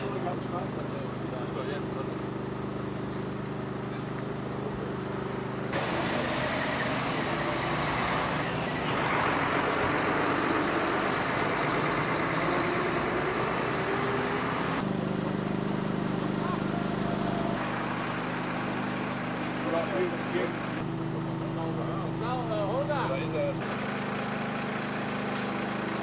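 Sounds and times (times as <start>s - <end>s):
engine hum: 0.0s - 26.0s
rushing engine and traffic noise: 0.0s - 26.0s.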